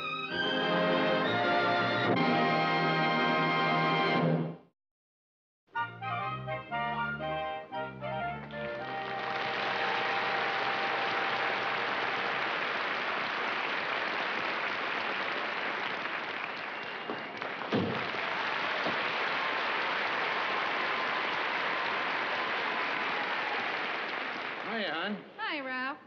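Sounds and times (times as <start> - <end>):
theme music: 0.0 - 4.6, 5.8 - 12.4
studio audience applauding: 8.5 - 25.2
thump: 17.7 - 18.1.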